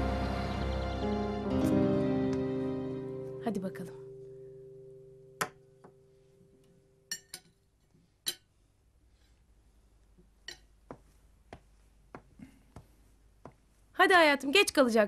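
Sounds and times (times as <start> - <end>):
soft music: 0.0 - 7.4.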